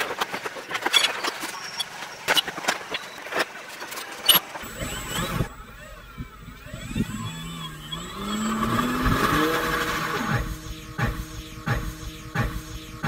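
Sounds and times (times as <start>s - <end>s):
electric motor whining: 4.3s - 13.0s.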